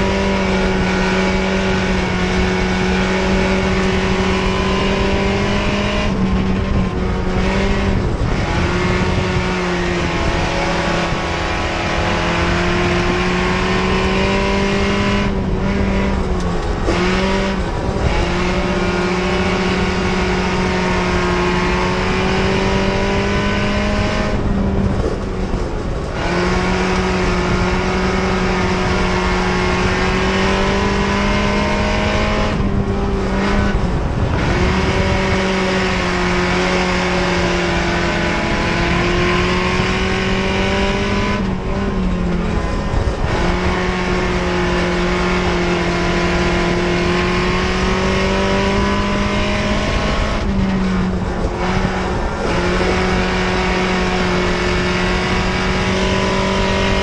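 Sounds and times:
race car engine at high revs: 0:00.0 - 0:57.0.

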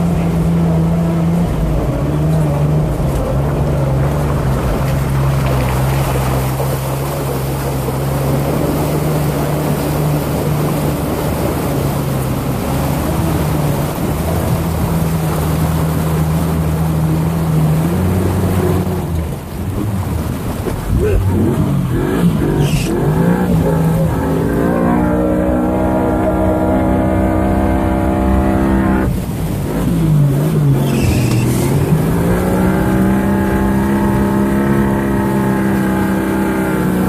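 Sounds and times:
car engine running under load: 0:00.0 - 0:37.0
tyres churning through water: 0:00.0 - 0:37.0.

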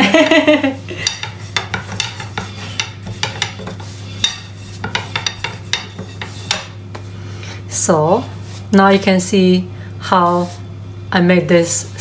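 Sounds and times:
rolling pin rolling dough: 0:00.0 - 0:07.1, 0:07.9 - 0:09.3.

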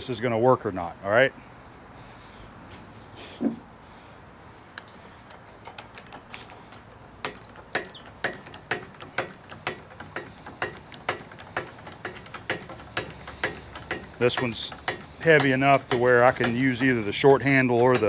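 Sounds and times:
hydraulic jack pump clicking: 0:04.6 - 0:18.0.

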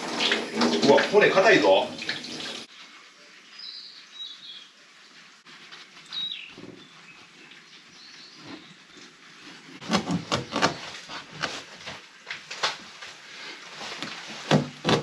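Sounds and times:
bird chirping: 0:03.5 - 0:04.8, 0:06.1 - 0:09.1
knife chopping on cutting board: 0:14.4 - 0:15.0.

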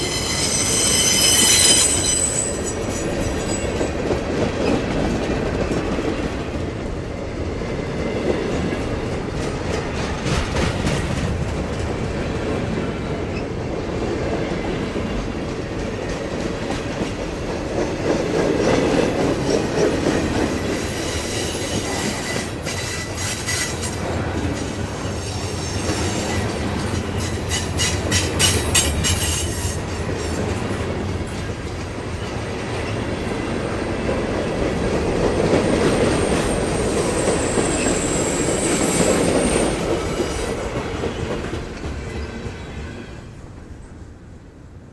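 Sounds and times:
high-pitched wheel squeal: 0:00.0 - 0:03.7, 0:36.3 - 0:39.8
train wheels rumbling and clacking: 0:00.0 - 0:43.8.

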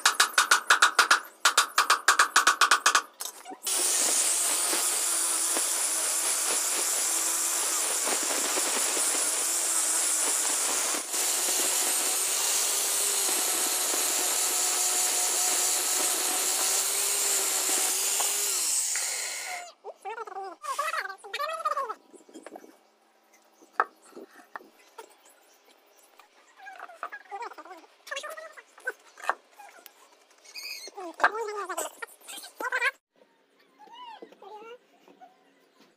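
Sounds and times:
power tool cutting wood: 0:03.6 - 0:19.7.

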